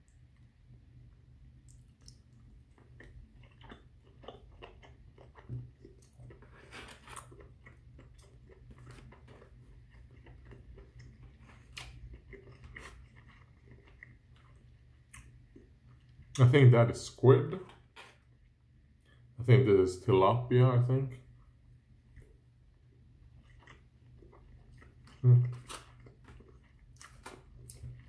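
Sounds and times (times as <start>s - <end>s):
low steady hum: 0.0s - 28.0s
person chewing food: 1.5s - 16.4s, 21.4s - 28.0s.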